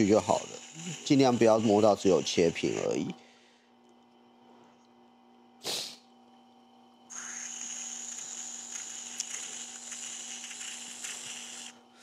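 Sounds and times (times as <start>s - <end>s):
grinding wheel motor hum: 0.0s - 3.2s, 7.1s - 11.8s.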